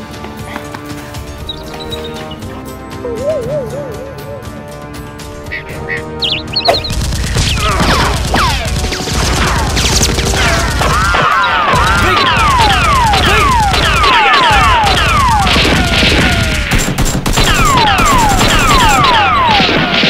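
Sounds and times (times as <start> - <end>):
rapid automatic gunfire: 6.8 - 20.0.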